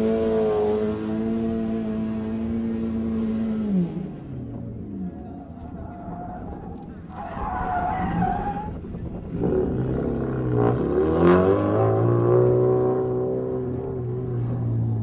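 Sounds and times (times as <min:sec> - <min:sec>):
rally car engine revving hard: 0:00.0 - 0:04.9, 0:08.0 - 0:15.0
tyres squealing: 0:05.4 - 0:08.8.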